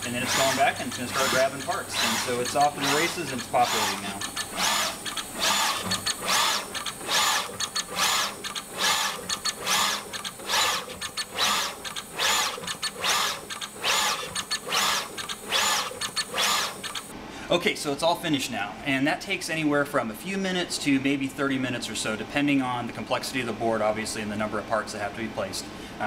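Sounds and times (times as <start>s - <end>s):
machine quick clicks: 0.0s - 17.1s
placement head rushing bursts: 0.0s - 17.1s.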